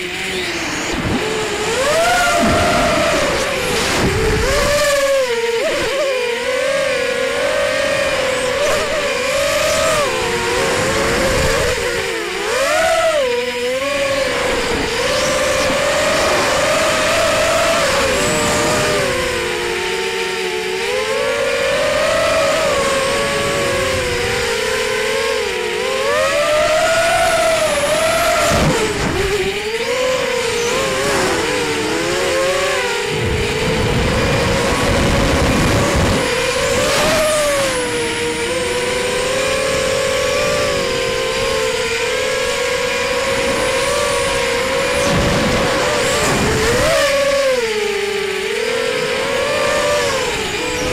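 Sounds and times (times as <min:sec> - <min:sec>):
quadcopter motors buzzing whine: 0:00.0 - 0:50.9
wind rumble on microphone: 0:00.9 - 0:06.0, 0:27.2 - 0:48.0, 0:49.0 - 0:50.9.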